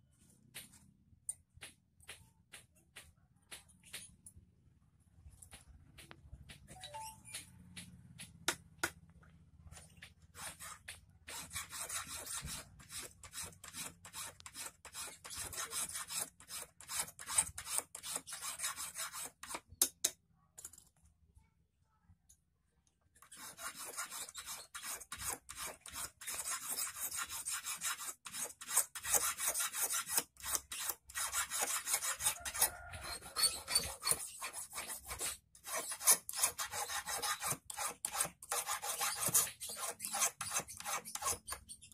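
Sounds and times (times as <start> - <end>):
hand file rasping on wire: 10.3 - 19.9, 23.2 - 41.9.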